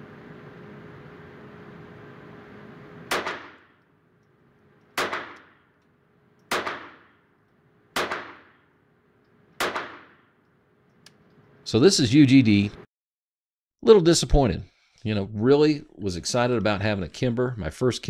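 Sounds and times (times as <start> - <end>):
pistol shots with ring-out: 3.1 - 3.8, 5.0 - 5.7, 6.5 - 7.2, 8.0 - 8.6, 9.6 - 10.3.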